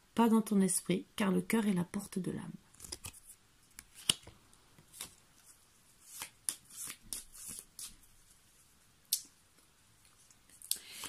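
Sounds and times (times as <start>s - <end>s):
cards flicking and rustling: 2.7s - 8.2s.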